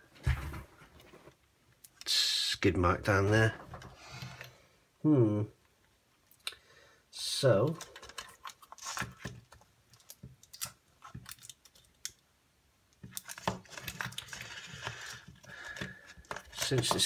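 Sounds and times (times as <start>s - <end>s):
rubbing and scraping plastic: 7.7s - 12.0s, 13.0s - 17.0s.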